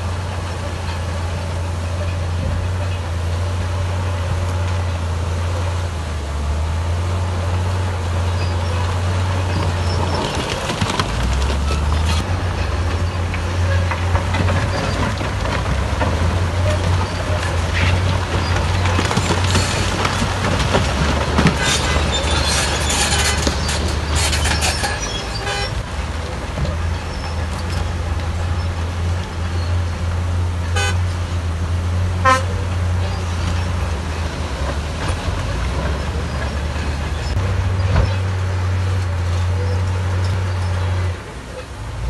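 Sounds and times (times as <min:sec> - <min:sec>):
heavy diesel engines running: 0:00.0 - 0:42.0
rock clattering down: 0:09.7 - 0:12.2
vehicle horn toots: 0:25.0 - 0:25.8, 0:30.7 - 0:31.1, 0:32.2 - 0:32.7.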